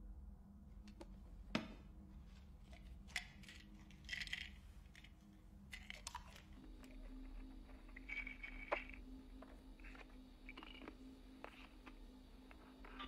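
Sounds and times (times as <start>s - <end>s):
low steady hum: 0.0s - 13.0s
small objects rustling: 2.6s - 13.0s.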